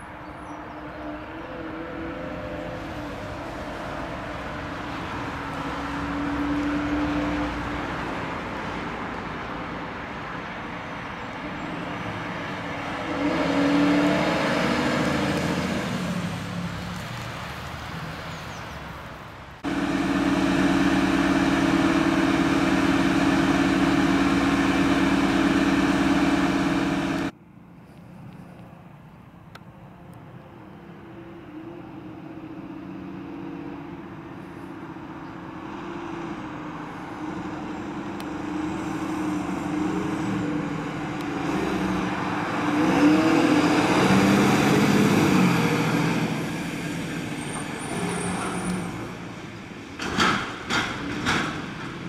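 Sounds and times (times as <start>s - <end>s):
fire engine driving past: 0.0s - 27.6s, 29.3s - 52.0s
loud steady drone: 19.6s - 27.3s.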